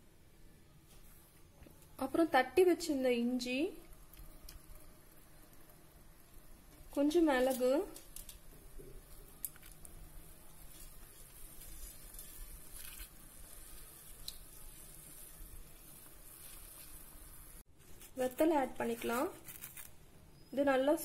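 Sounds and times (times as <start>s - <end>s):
pan of water heating hiss: 3.1s - 18.1s.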